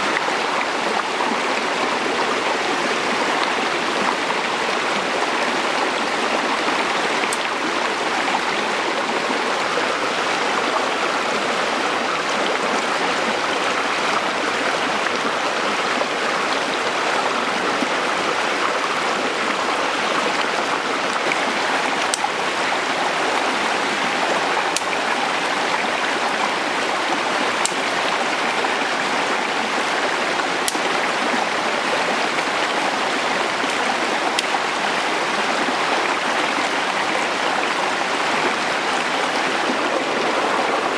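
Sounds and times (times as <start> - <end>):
stream splashing over rocks: 0.0 - 40.9
faint sharp clicks: 24.7 - 24.9, 27.6 - 27.8.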